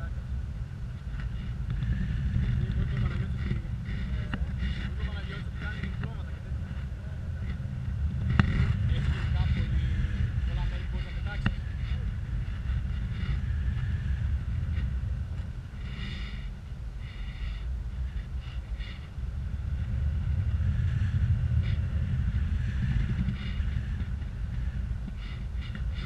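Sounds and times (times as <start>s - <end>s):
wind buffeting microphone: 0.0s - 26.0s.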